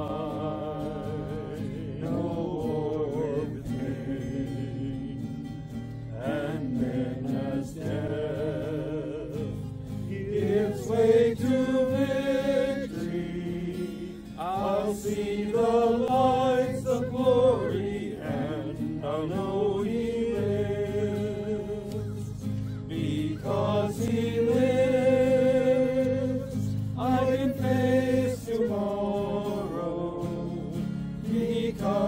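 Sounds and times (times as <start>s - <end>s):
guitar chords: 0.0s - 32.0s
voices singing a hymn: 0.0s - 32.0s.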